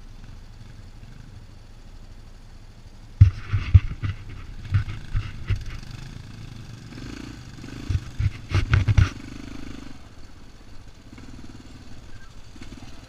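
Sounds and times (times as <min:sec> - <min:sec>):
atv engine droning: 0:00.0 - 0:13.0
knocks and rattles: 0:03.2 - 0:06.0, 0:07.8 - 0:09.2.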